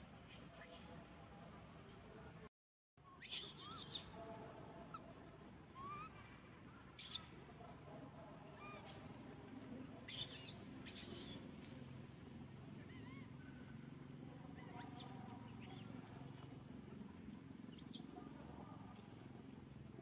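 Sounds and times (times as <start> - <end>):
monkeys squealing: 3.2 - 4.1, 5.8 - 6.1, 10.1 - 11.4.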